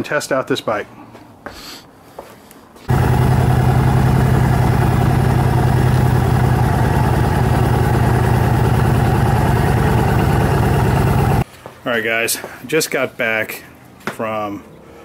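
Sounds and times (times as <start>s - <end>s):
motorcycle engine running steadily: 2.9s - 11.4s.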